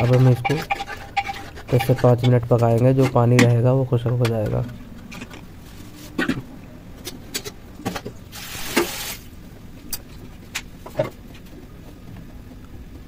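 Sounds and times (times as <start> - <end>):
pressure cooker hiss: 8.3 - 9.2.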